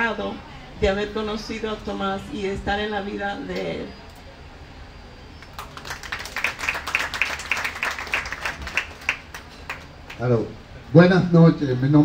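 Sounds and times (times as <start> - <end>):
audience applauding: 5.4 - 10.3.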